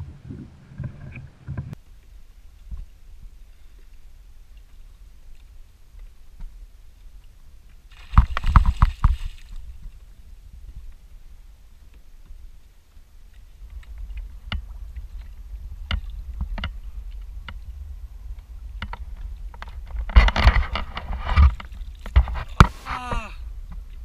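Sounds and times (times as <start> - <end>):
wind on microphone: 0.0 - 24.0
water splashing: 7.8 - 10.0.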